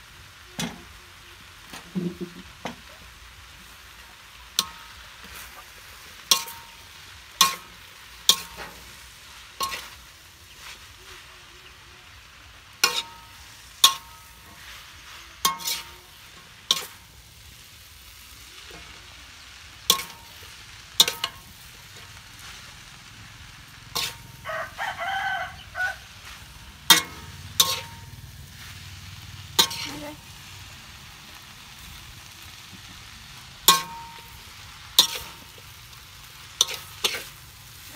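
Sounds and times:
low sizzle: 0:00.0 - 0:37.9
metal spatula scraping a wok: 0:01.7 - 0:37.9
drawn-out crowing call: 0:24.2 - 0:26.8.

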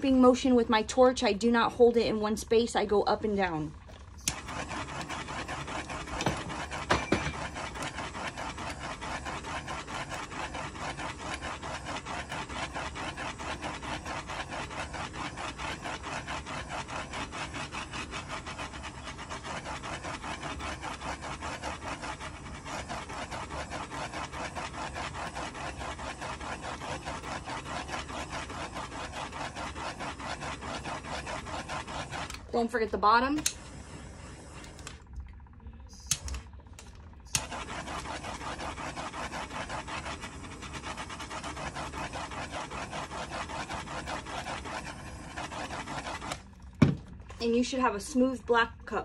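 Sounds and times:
tumbler spinner rubbing whir: 0:00.0 - 0:49.0.

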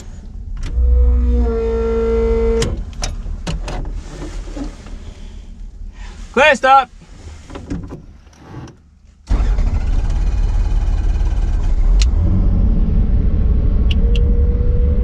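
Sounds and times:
steady whine: 0:09.3 - 0:15.0.

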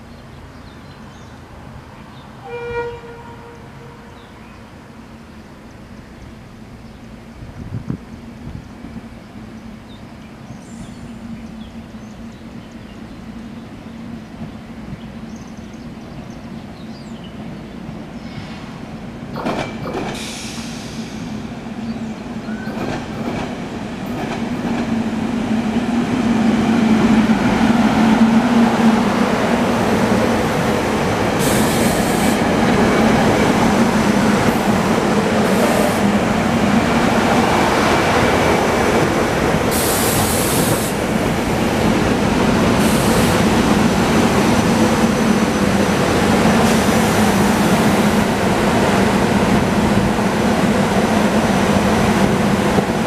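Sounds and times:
train wheels on rails: 0:07.5 - 0:53.0
electric train humming: 0:19.0 - 0:53.0
short bursts of high hiss: 0:39.7 - 0:41.0.

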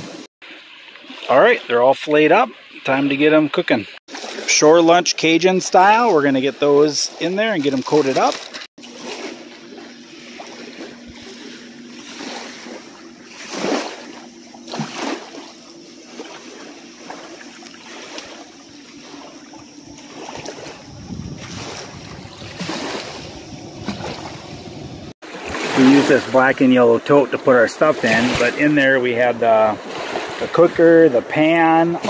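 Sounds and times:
lake water lapping: 0:00.0 - 0:32.0
wind gusts: 0:16.5 - 0:26.5.

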